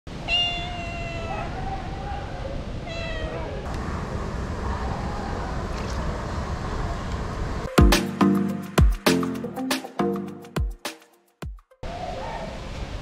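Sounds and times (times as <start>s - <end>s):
cat meowing: 0.2s - 3.7s.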